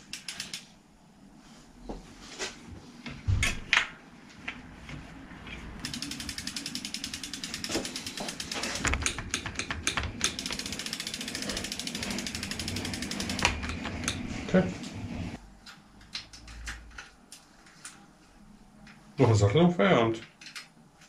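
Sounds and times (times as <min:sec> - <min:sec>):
bicycle freewheel ratcheting: 0:00.0 - 0:00.7, 0:05.8 - 0:14.4.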